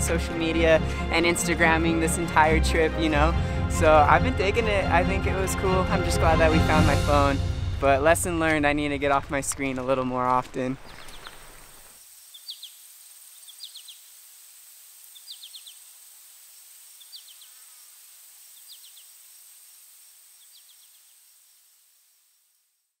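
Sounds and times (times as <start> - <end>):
soft steady hiss: 10.6 - 23.0.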